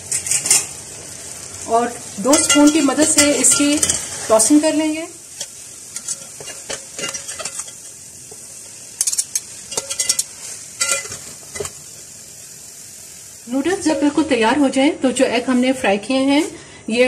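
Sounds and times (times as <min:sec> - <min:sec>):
noodles sizzling in a pot: 0:00.0 - 0:17.0
metal spoons scraping a pot: 0:05.4 - 0:08.0, 0:09.0 - 0:11.8.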